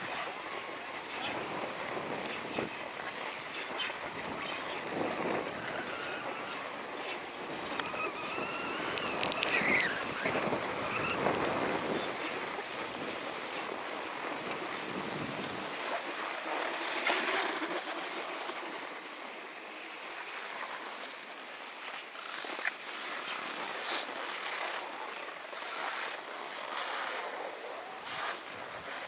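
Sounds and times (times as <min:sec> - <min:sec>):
wind on microphone: 0:00.0 - 0:21.1
skis scraping over packed snow: 0:00.0 - 0:29.0.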